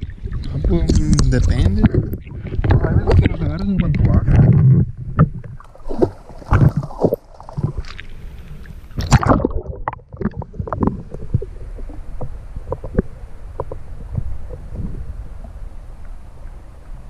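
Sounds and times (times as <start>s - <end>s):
muffled underwater rumble: 0.0s - 17.0s
water splashing: 0.0s - 17.0s
small underwater clicks: 5.2s - 16.6s.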